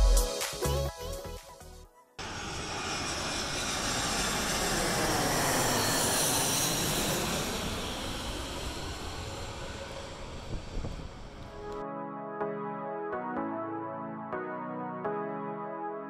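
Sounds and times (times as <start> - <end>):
jet passing overhead: 2.2 - 11.8.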